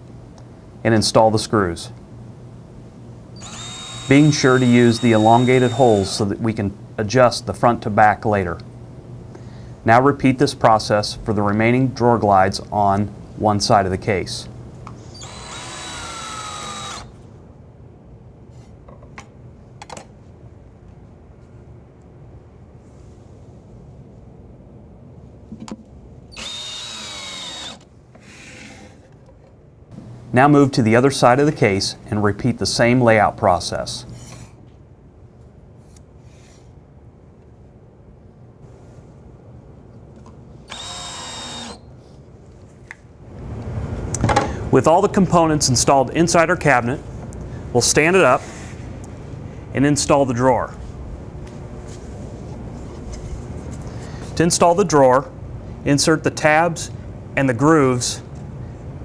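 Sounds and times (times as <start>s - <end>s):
cordless drill motor whining: 3.4s - 6.3s, 15.0s - 17.2s, 26.4s - 28.9s, 40.7s - 41.8s.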